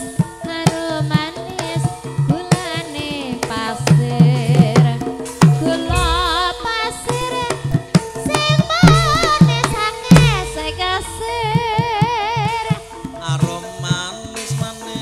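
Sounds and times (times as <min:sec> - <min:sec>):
woman singing with vibrato: 0:00.5 - 0:12.9
deep hand-drum strokes: 0:05.7 - 0:13.4
sustained gamelan tones: 0:05.8 - 0:14.6.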